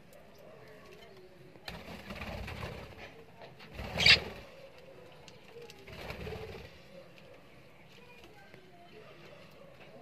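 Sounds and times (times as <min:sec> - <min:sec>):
budgerigars fluttering wings: 0:03.8 - 0:04.4.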